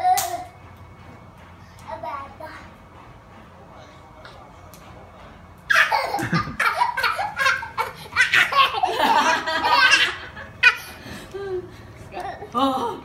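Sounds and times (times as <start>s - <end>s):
woman and child laughing: 5.7s - 13.0s.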